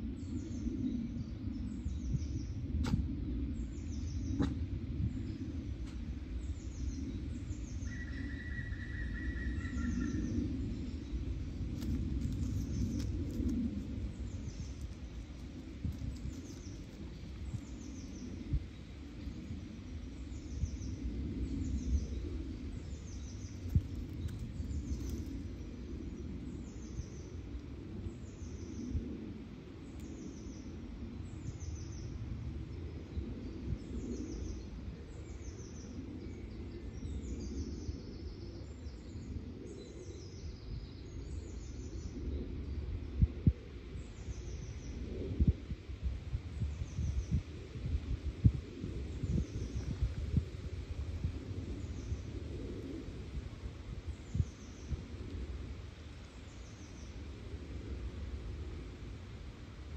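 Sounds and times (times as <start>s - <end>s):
steady low rumble: 0.0s - 59.9s
small songbird calling: 6.7s - 11.0s.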